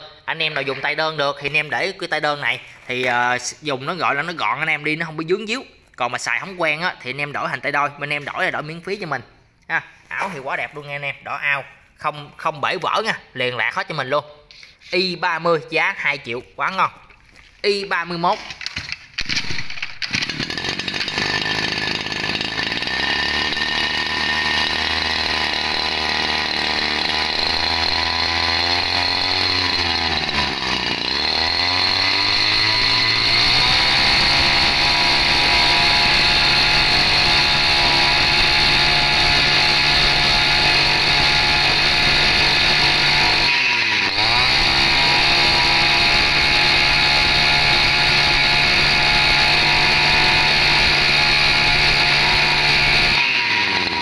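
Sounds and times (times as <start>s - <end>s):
brush cutter engine running: 18.6s - 54.0s.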